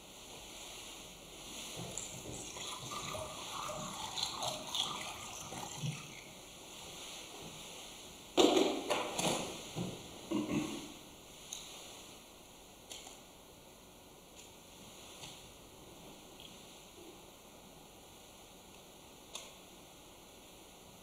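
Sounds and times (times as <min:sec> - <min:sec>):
water pouring into cup: 0:01.8 - 0:06.4.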